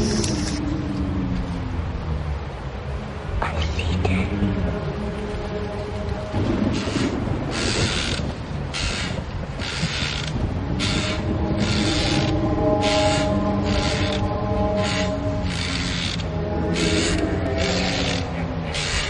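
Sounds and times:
low rumbling drone: 0:00.0 - 0:19.0
rasping creaking stroke: 0:06.8 - 0:19.0.

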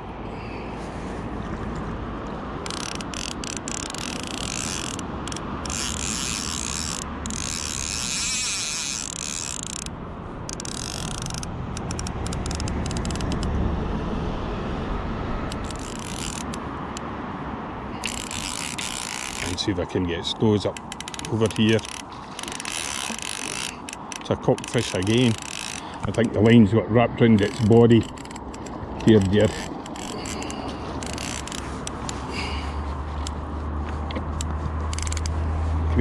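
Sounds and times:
fishing reel ratchet buzzing: 0:02.6 - 0:13.5, 0:15.5 - 0:17.0, 0:18.0 - 0:26.6, 0:27.3 - 0:33.4, 0:34.4 - 0:35.3.

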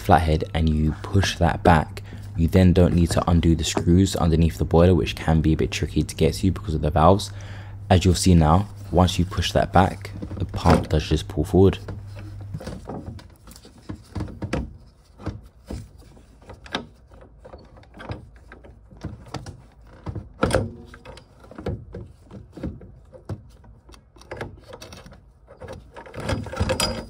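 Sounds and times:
clicks and knocks of pump: 0:11.8 - 0:27.0.

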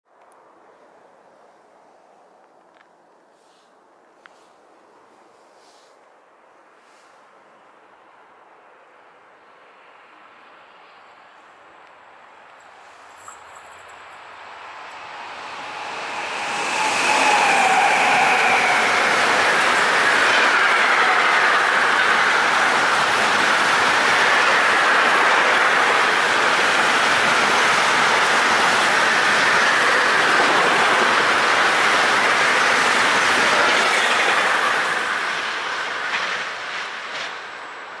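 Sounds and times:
freight train wheels on rail: 0:09.8 - 0:38.0.

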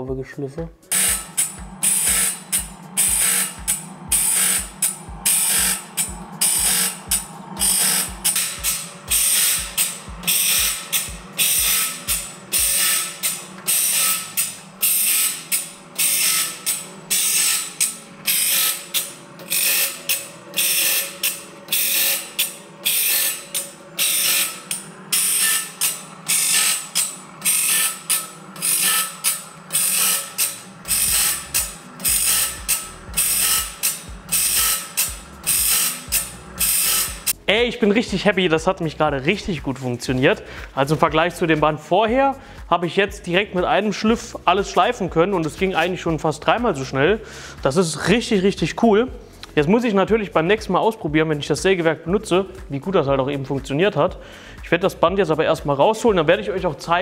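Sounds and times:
machine motor hum: 0:00.7 - 0:41.7
grinding wheel on saw teeth: 0:00.8 - 0:37.6.

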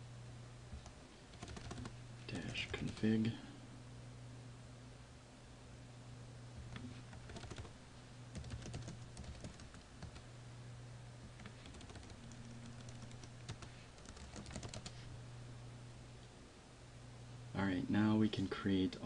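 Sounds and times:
low steady hum: 0:00.0 - 0:19.0
keyboard typing: 0:00.7 - 0:03.1, 0:06.7 - 0:07.7, 0:08.3 - 0:10.2, 0:11.4 - 0:15.0.

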